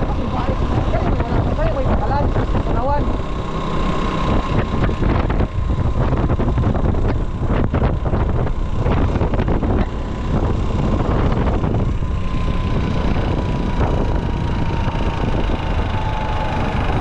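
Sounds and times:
motorcycle engine running: 0.0s - 17.0s
wind buffeting microphone: 0.0s - 17.0s.

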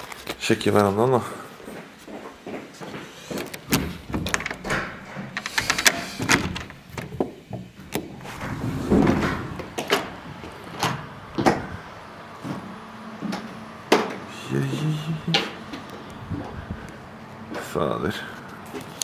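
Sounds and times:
door swinging open: 3.4s - 11.8s.

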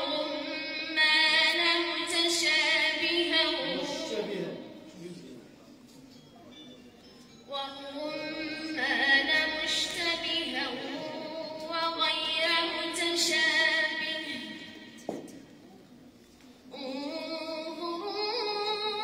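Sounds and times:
woman reciting melodically: 0.0s - 4.9s, 7.4s - 15.0s, 16.7s - 19.0s.

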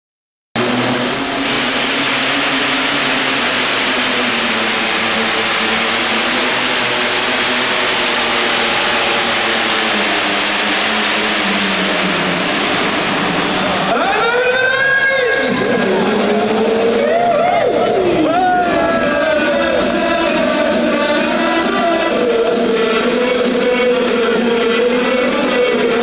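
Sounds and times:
high turbo whistle: 0.6s - 16.0s
tractor engine at full power: 0.6s - 26.0s.

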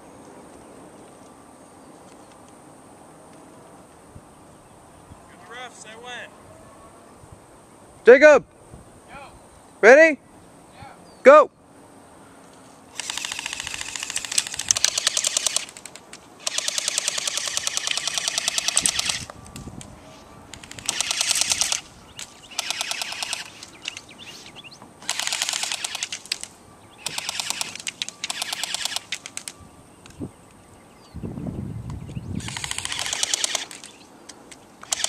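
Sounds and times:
airsoft guns firing full-auto bursts: 13.0s - 19.3s, 20.6s - 21.9s, 22.5s - 24.1s, 25.0s - 29.5s, 32.4s - 34.0s.

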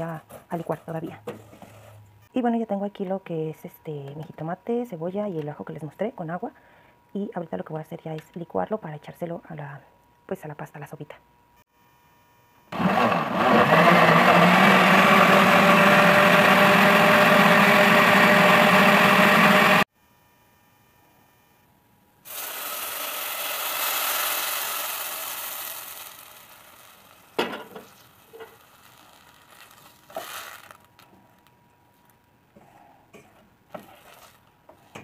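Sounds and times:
blender running: 12.7s - 19.9s, 22.3s - 27.4s
sizzling hiss: 22.2s - 31.4s.

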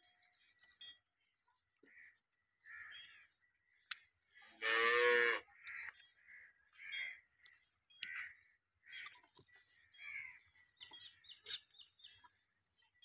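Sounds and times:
cow mooing: 4.6s - 5.5s
bird chirps: 5.7s - 13.0s.

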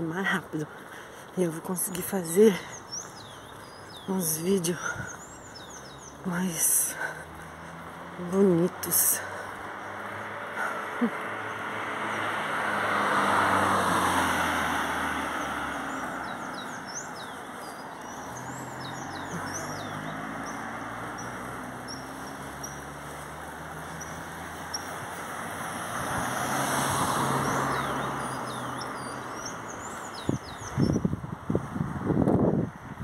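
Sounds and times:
small birds chirping: 0.0s - 31.2s
cars passing: 0.0s - 33.0s.

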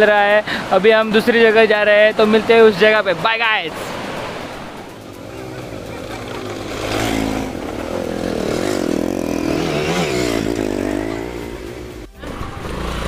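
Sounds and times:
motorcycle engines revving: 0.0s - 13.0s
low engine rumble: 3.9s - 13.0s.

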